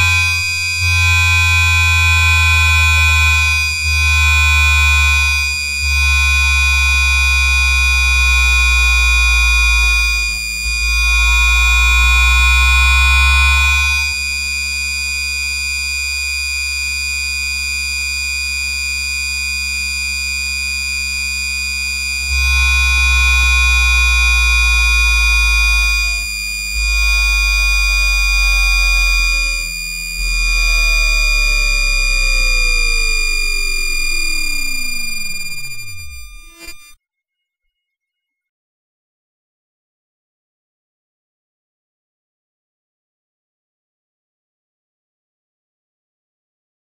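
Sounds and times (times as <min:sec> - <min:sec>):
electric inverter whine: 0:00.0 - 0:37.0
tones gliding down: 0:22.4 - 0:37.0.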